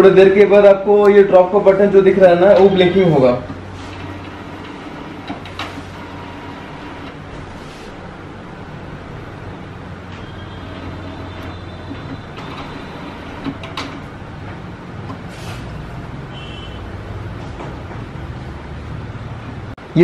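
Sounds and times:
printer mechanical hum: 0.4 - 19.7
sharp printer clicks: 3.9 - 7.2, 10.7 - 14.1.

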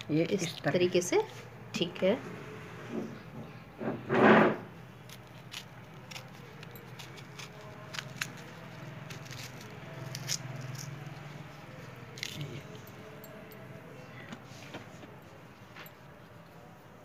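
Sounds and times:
knife slitting chillies: 5.0 - 11.2, 12.1 - 12.6.

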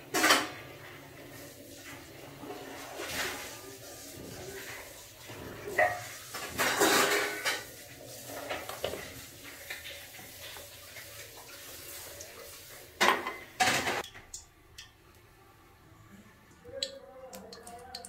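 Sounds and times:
kitchenware clattering: 0.0 - 0.8, 4.2 - 11.4, 12.9 - 14.9
water pouring: 1.1 - 14.9.

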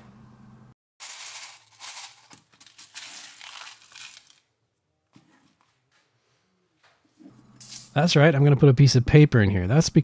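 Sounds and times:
steel pellets rattling in plastic tub: 1.0 - 4.5.

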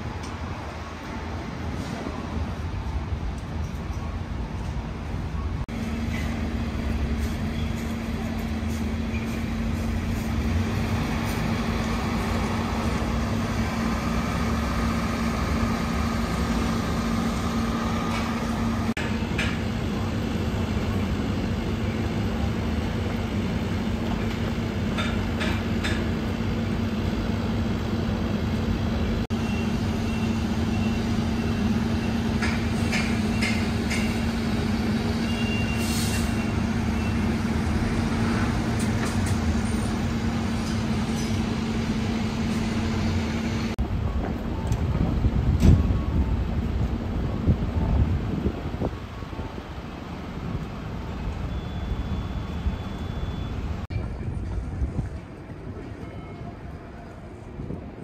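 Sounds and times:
street traffic rumble: 0.0 - 58.0.

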